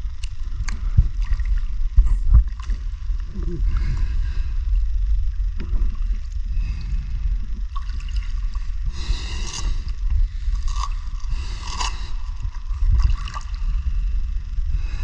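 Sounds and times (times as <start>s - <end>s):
underwater water rumble: 0.0s - 15.0s.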